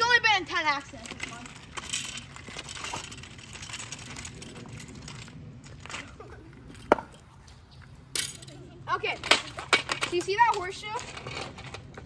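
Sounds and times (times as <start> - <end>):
scooter wheels rolling on wet asphalt: 0.0 - 12.0.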